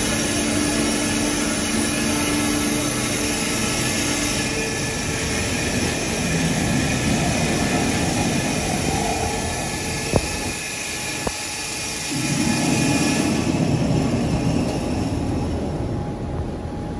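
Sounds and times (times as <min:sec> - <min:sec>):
foam-cutting machine running: 0:00.0 - 0:07.2.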